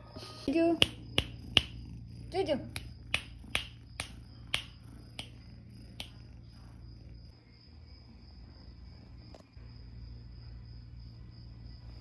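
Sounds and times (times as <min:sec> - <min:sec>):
finger snaps: 0:00.8 - 0:01.8, 0:02.8 - 0:05.4, 0:06.0 - 0:06.2.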